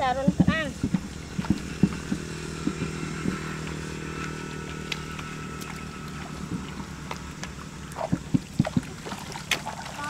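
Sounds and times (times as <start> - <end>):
motor hum: 0.0 - 10.0
hands splashing in wet mud: 3.3 - 10.0.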